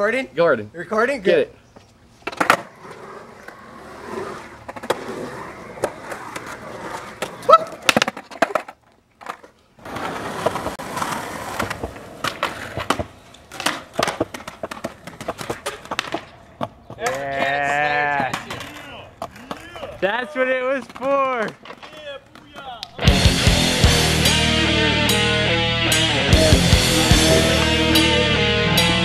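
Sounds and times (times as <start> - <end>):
skateboard wheels rolling on concrete: 0.0 - 29.0
skateboard clacking on ground: 2.2 - 2.7, 5.7 - 23.0.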